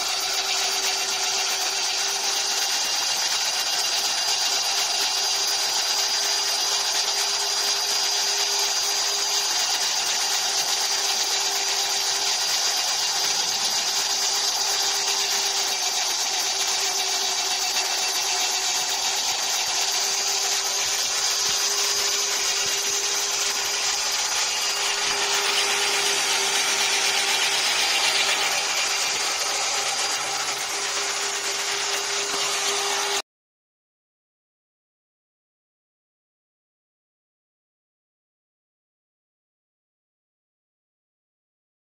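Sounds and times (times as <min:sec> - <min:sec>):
chaff cutter motor whine: 0:00.0 - 0:33.2.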